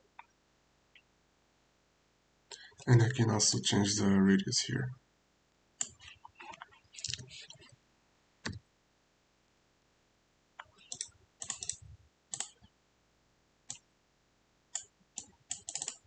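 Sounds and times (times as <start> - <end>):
mouse and keyboard clicks: 5.8 - 7.6, 10.6 - 12.6, 14.8 - 16.0.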